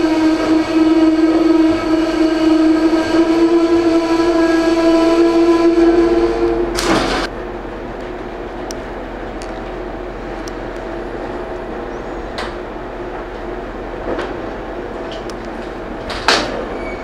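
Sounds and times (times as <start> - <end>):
train horn: 0.0 - 7.3
train rumbling and humming: 0.0 - 17.0.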